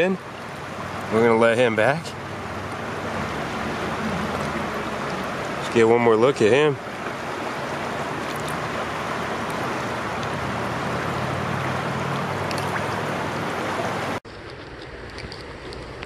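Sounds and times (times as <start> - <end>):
creek water rippling over rocks: 0.0 - 16.0.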